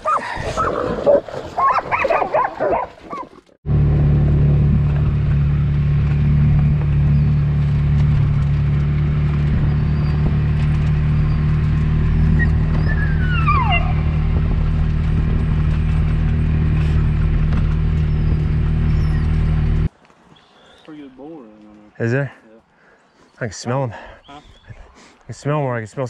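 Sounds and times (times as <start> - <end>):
dogs barking and yelping: 0.0 - 3.4, 11.1 - 14.6
vehicle engine on dirt track: 3.6 - 19.9.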